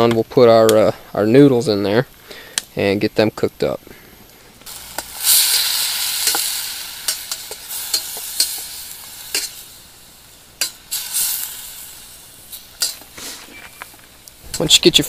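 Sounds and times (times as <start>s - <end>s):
fish sizzling in a pan: 4.6s - 15.0s
metal spatula scraping a pan: 12.8s - 13.6s.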